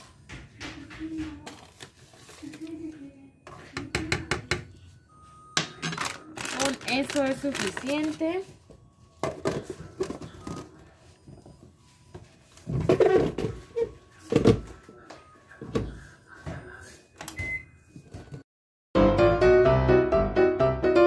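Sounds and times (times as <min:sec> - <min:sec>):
piano music: 0:19.0 - 0:21.0.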